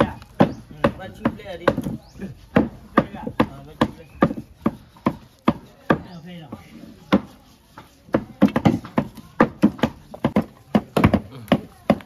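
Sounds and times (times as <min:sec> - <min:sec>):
knife chopping meat on board: 0:00.0 - 0:06.2.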